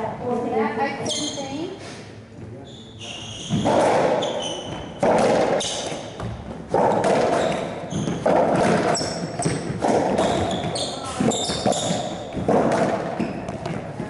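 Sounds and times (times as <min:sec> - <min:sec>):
shoes squeaking on court floor: 0:01.0 - 0:14.0
racquetball hitting racquets and walls: 0:03.0 - 0:14.0.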